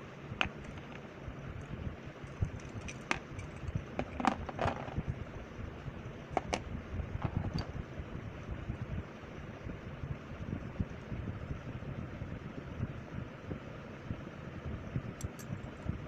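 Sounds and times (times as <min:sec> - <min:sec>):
handling rumble on microphone: 0:06.3 - 0:07.8.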